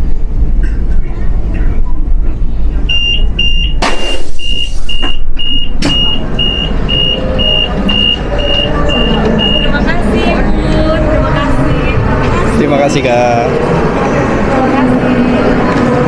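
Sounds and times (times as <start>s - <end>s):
train low rumble: 0.0s - 16.0s
train door warning beeps: 2.8s - 10.0s
burst of noise from door: 3.8s - 4.9s.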